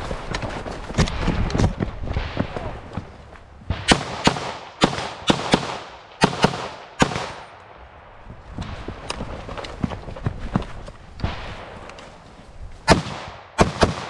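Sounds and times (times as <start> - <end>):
rifle shots with echo: 3.7 - 9.0, 12.8 - 14.0.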